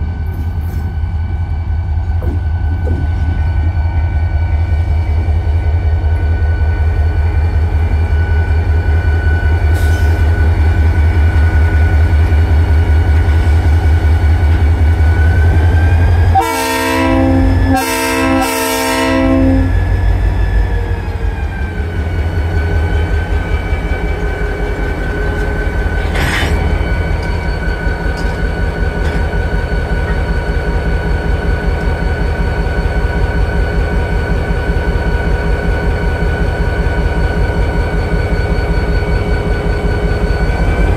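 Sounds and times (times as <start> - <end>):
locomotive engine rumbling: 0.0 - 40.9
locomotive air horn blasts: 16.3 - 19.8.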